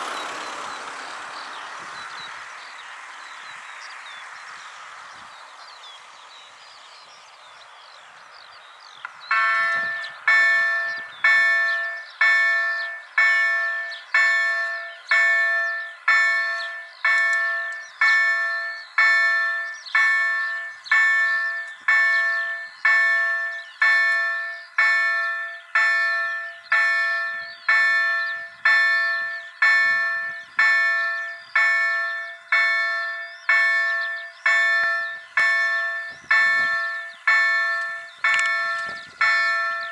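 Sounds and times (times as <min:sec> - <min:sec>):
birds chirping faintly: 0:00.0 - 0:39.9
level crossing warning bell: 0:09.3 - 0:39.9.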